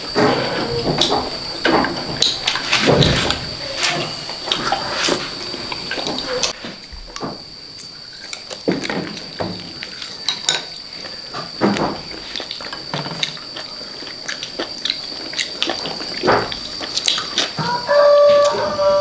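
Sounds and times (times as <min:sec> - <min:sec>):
man chewing and slurping: 0:04.0 - 0:17.7.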